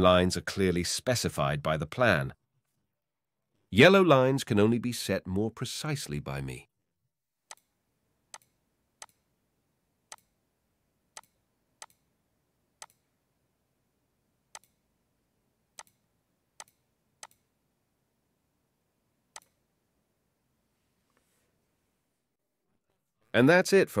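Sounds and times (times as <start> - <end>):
faint room hiss: 7.8 - 22.4
computer mouse clicking: 8.3 - 9.2, 10.1 - 10.3, 11.2 - 12.0, 12.8 - 13.0, 14.5 - 14.8, 15.8 - 16.0, 16.6 - 17.5, 19.4 - 19.6.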